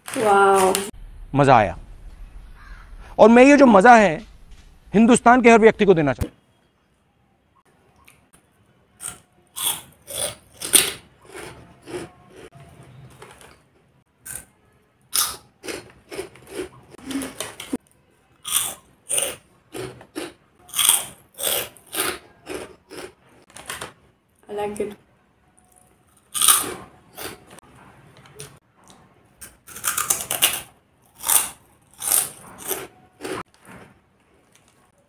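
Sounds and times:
crunching and chewing snack: 9.0s - 14.5s, 15.1s - 23.8s, 25.6s - 27.5s, 28.4s - 35.0s.

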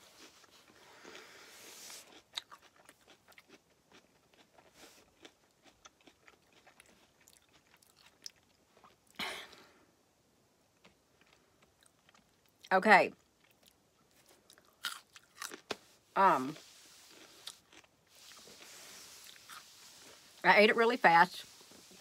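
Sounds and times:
person chewing: 0.1s - 9.2s, 11.2s - 12.7s, 13.3s - 15.9s, 16.5s - 20.4s.

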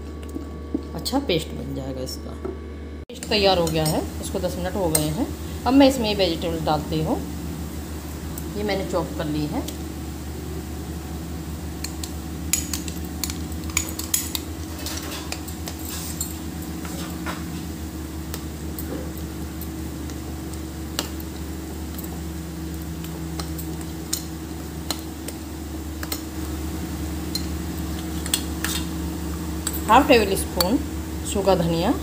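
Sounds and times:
low hum: 0.0s - 32.0s
spoon stirring thick batter: 11.8s - 25.4s.

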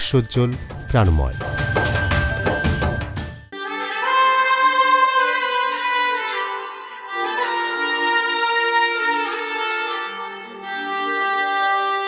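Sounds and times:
slow instrumental music: 0.0s - 12.0s.

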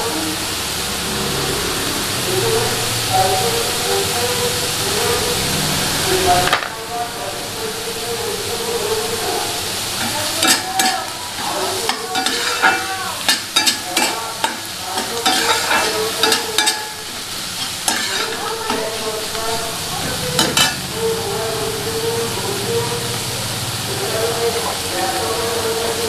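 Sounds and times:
loud steady hiss with hum: 0.0s - 26.0s
onions sizzling in oil: 0.0s - 26.0s
metal spatula scraping a pan: 10.0s - 20.9s.

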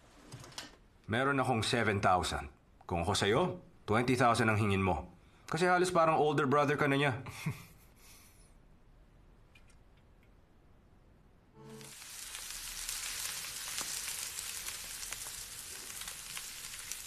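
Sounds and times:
steak sizzling on grill pan: 11.6s - 17.0s.

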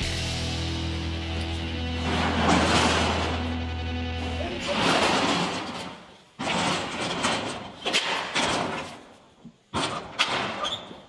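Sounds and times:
metal roll-up door rattling: 1.9s - 9.1s, 9.7s - 11.0s.

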